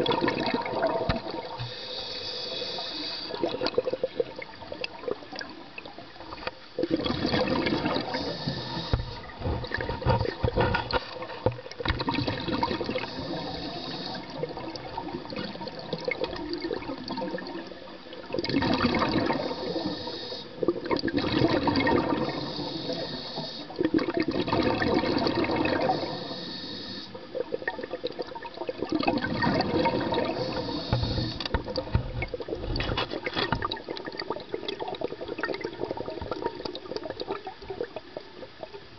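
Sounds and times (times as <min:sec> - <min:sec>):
diver inhaling through regulator: 0:01.6 - 0:03.5, 0:08.0 - 0:09.3, 0:12.9 - 0:14.4, 0:19.2 - 0:20.6, 0:22.0 - 0:23.8, 0:25.7 - 0:27.2, 0:30.0 - 0:31.6
exhaust bubbles rushing: 0:23.8 - 0:26.0, 0:28.5 - 0:30.5.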